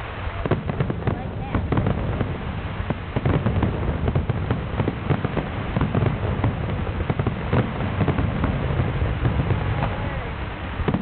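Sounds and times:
fireworks crackling pops: 0.0s - 11.0s.

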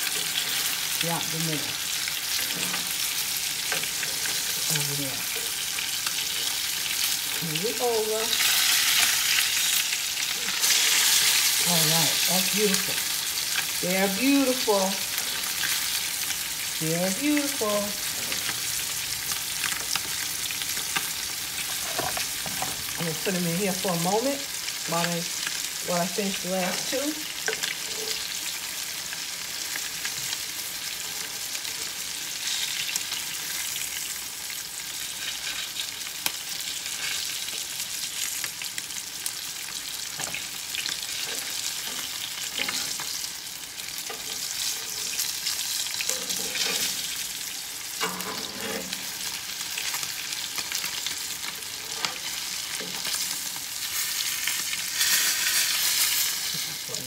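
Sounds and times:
fish sizzling in a pan: 0.0s - 57.0s
spatula scraping and tapping pan: 21.7s - 22.8s, 46.0s - 47.1s, 48.0s - 49.1s.

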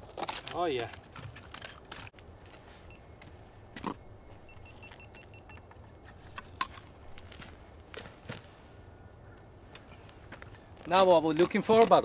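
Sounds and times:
high beeping ticks: 3.9s - 5.9s.

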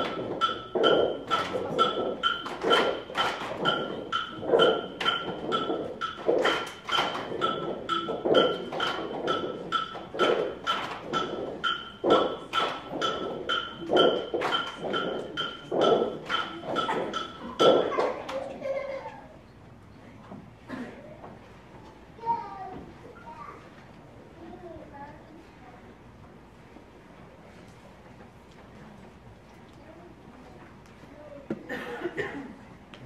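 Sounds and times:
hand claps: 8.3s - 18.4s.

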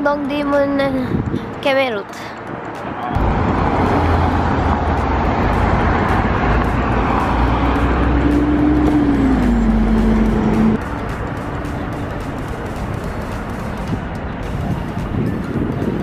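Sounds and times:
cars driving past: 2.2s - 16.0s
vehicle engine pitch falling: 3.1s - 15.3s.

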